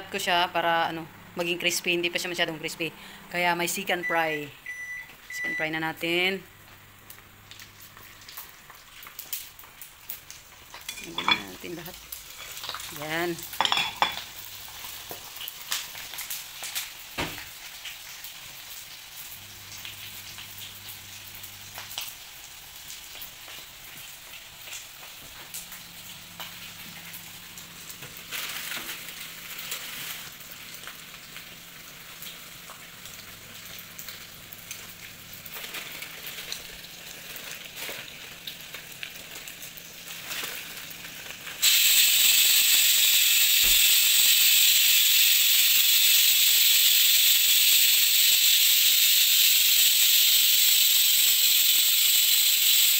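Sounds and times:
meat deep-frying in oil: 0:04.0 - 0:52.9
loud steady hiss: 0:41.6 - 0:52.9.

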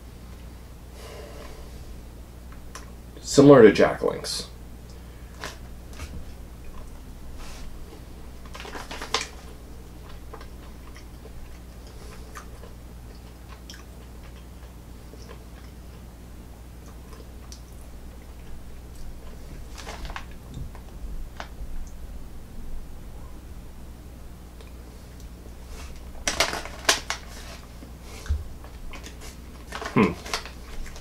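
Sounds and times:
person chewing dry jerky: 0:04.9 - 0:21.5, 0:24.6 - 0:31.0.

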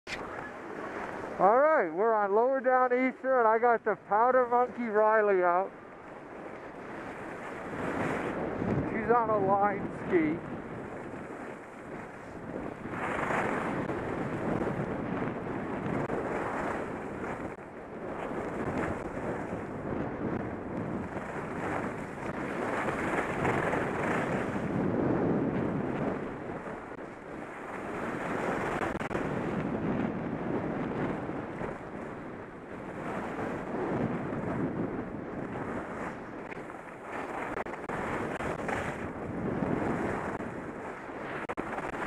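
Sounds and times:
wind rushing over microphone: 0:00.1 - 0:42.0.

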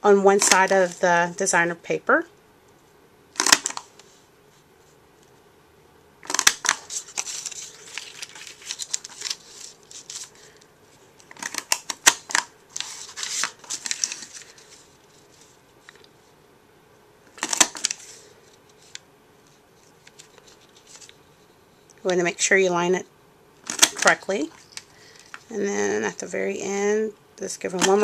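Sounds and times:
paper punch clicking: 0:03.4 - 0:03.8
paper rustling: 0:06.2 - 0:16.1, 0:17.3 - 0:21.2.

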